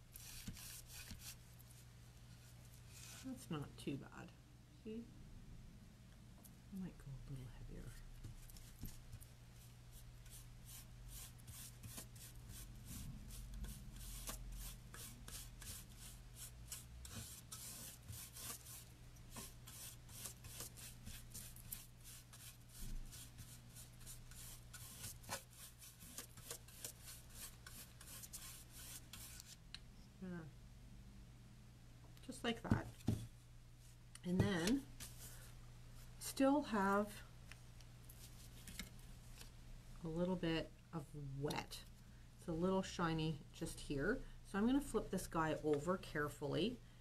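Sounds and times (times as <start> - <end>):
dry paintbrush scratching on wood: 0.1 - 1.4, 9.9 - 29.6.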